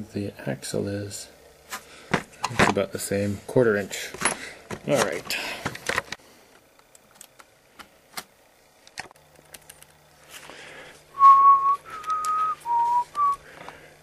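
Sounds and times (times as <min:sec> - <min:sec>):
person whistling a tune: 0:11.2 - 0:13.4.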